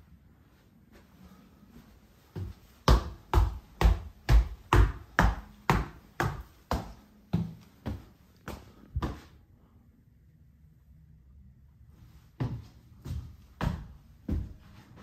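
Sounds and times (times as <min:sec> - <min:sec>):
footsteps on wooden stairs: 0:02.4 - 0:09.3, 0:12.4 - 0:15.0.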